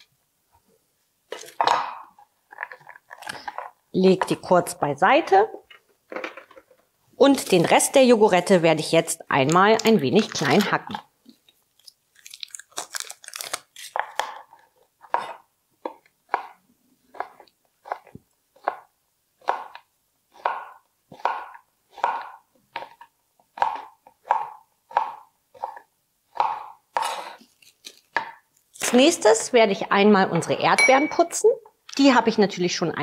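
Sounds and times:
knife chopping chocolate on board: 0:15.1 - 0:19.8, 0:20.4 - 0:23.0, 0:23.6 - 0:27.2.

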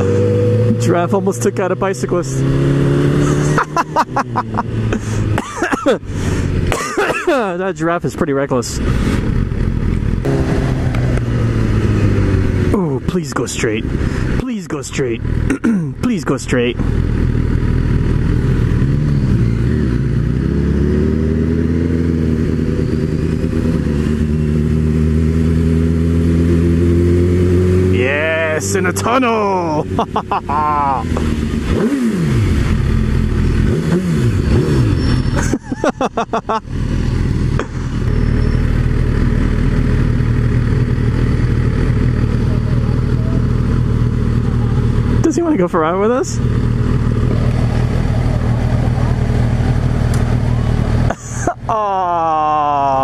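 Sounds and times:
motorcycle engine revving: 0:00.0 - 0:07.1, 0:08.3 - 0:53.0.

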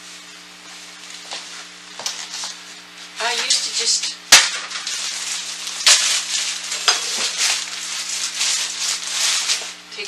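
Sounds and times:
plastic bag crinkling: 0:03.2 - 0:10.0.

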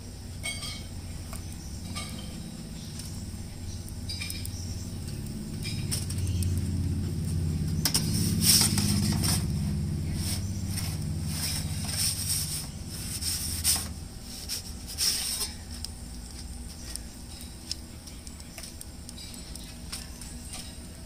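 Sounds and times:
low rumble: 0:01.0 - 0:14.4
metal pizza peel scraping stone: 0:07.8 - 0:15.6.

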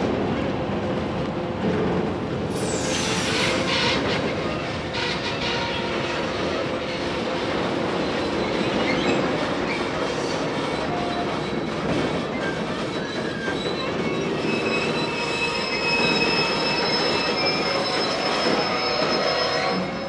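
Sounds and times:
train wheels clattering: 0:01.6 - 0:19.8
high-pitched wheel squeal: 0:12.4 - 0:20.0.

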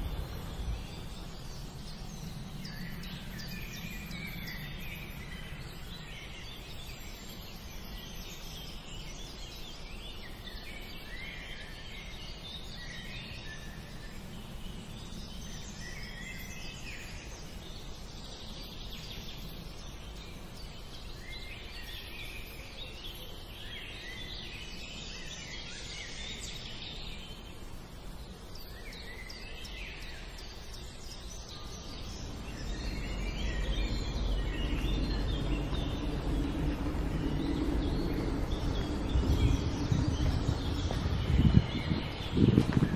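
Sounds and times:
steady low rumble: 0:00.0 - 0:06.8, 0:31.0 - 0:42.9
birds chirping: 0:00.0 - 0:42.9.

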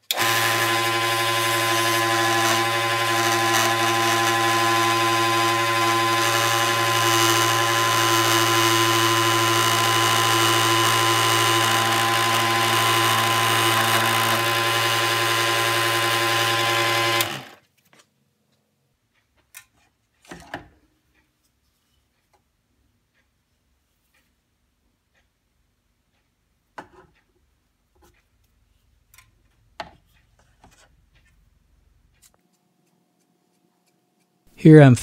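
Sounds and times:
scroll saw humming and whining: 0:00.0 - 0:17.6.

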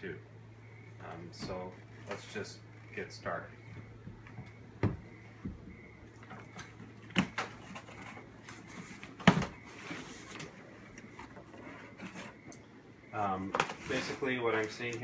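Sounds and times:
knocks on wooden table: 0:04.8 - 0:05.7
cardboard rustling and scraping: 0:06.1 - 0:12.6, 0:13.3 - 0:15.0.

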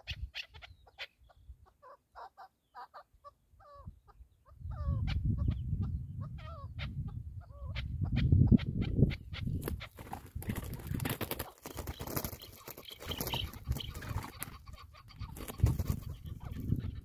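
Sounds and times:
wind rumble on microphone: 0:03.7 - 0:11.2, 0:13.1 - 0:17.0
bird wingbeats and scuffling: 0:09.5 - 0:16.8.

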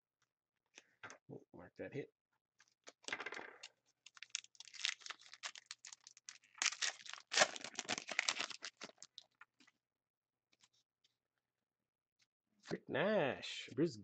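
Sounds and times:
foil wrapper tearing and crinkling: 0:04.0 - 0:09.4.

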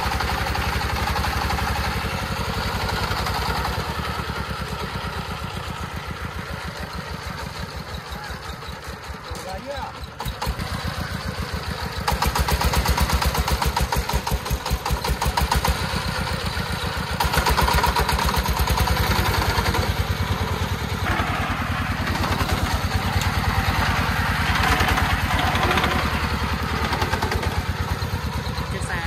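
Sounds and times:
diesel engine thudding under load: 0:10.0 - 0:29.0.

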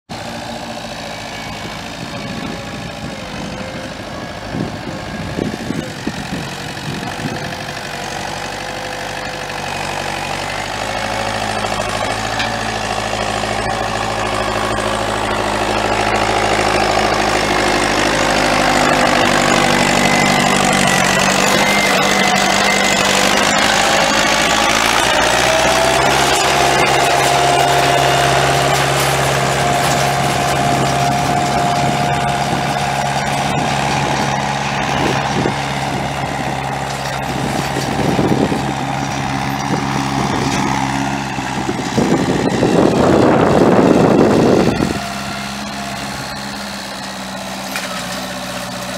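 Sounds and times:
tractor diesel engine running: 0:00.1 - 0:48.9.

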